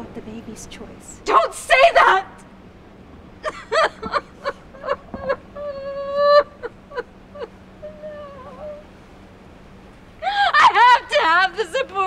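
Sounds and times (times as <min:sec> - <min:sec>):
woman sobbing and crying: 0:03.4 - 0:08.9, 0:10.2 - 0:12.0.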